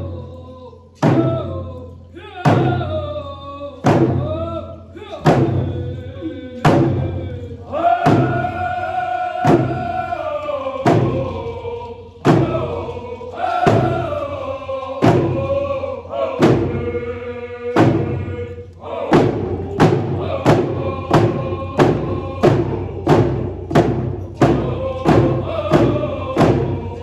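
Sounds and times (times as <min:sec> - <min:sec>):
group of voices singing: 0:00.0 - 0:27.0
hand drums beating: 0:10.8 - 0:11.5, 0:12.2 - 0:14.2, 0:19.1 - 0:27.0.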